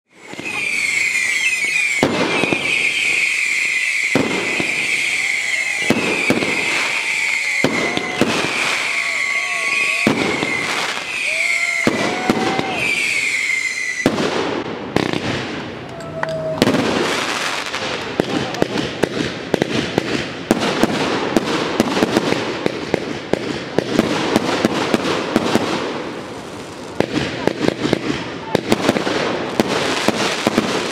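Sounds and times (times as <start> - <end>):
firework whistles falling in pitch: 0.1 - 17.8
firework crackles and bangs: 0.1 - 30.9.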